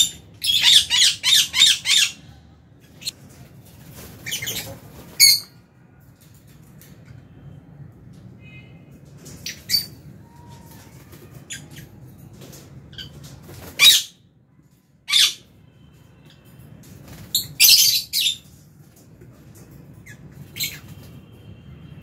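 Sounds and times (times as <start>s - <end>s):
lovebirds squawking: 0.0s - 2.3s.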